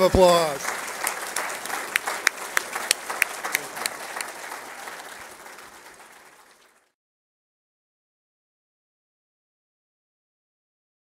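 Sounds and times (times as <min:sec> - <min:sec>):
audience applauding: 0:00.0 - 0:07.0
loud nearby claps: 0:00.0 - 0:07.0.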